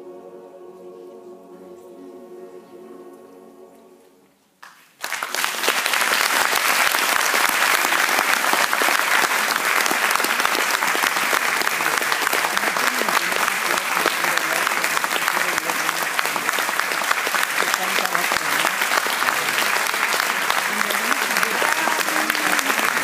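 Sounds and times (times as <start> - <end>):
choir holding chord: 0.0 - 4.4
audience applause: 4.6 - 23.0.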